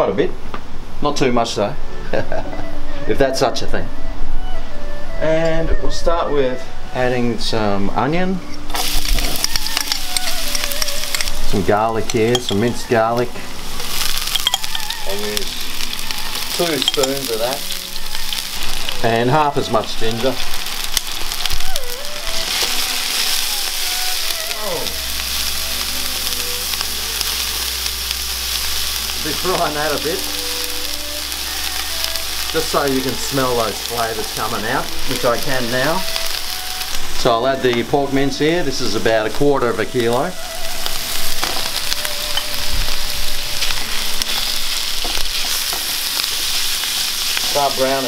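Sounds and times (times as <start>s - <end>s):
onion sizzling in hot oil: 8.7s - 48.0s
spatula stirring in a pan: 43.6s - 47.6s.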